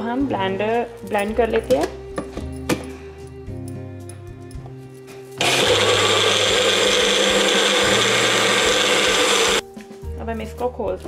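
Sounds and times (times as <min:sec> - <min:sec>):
blender motor running: 0:05.4 - 0:09.6.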